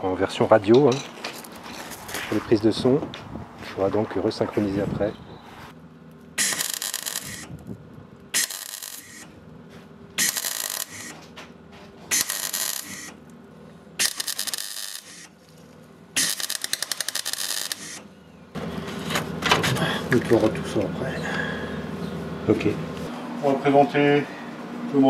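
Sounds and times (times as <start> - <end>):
welder arc crackling: 6.1 - 9.5, 10.1 - 11.2, 12.1 - 13.4, 14.0 - 15.6, 16.2 - 18.1.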